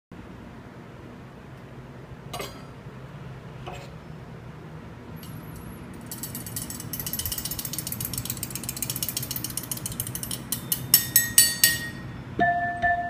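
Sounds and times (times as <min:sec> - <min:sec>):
spoon clinking on fork: 0:06.1 - 0:12.0.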